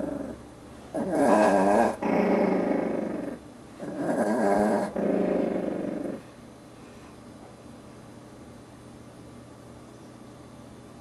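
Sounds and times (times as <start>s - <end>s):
small dog growling: 0.0s - 6.3s.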